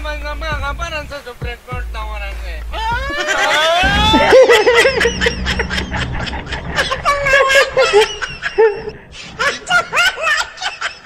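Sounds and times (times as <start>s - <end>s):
man laughing: 2.8s - 11.0s
rising pitched glide: 3.8s - 9.5s.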